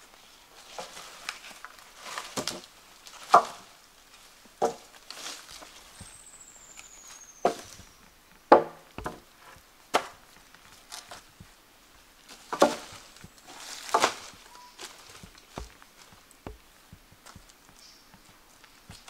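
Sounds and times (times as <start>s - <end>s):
wood being chopped: 3.3s - 3.6s, 4.6s - 4.9s, 7.4s - 7.8s, 8.5s - 10.2s, 12.5s - 17.5s.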